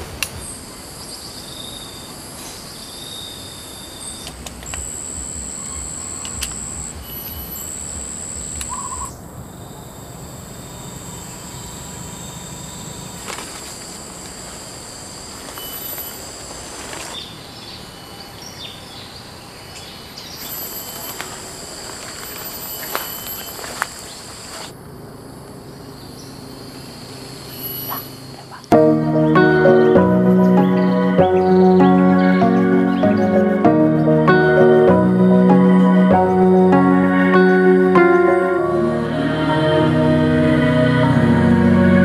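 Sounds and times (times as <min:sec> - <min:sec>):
high-pitched calls: 0:00.9 - 0:09.2.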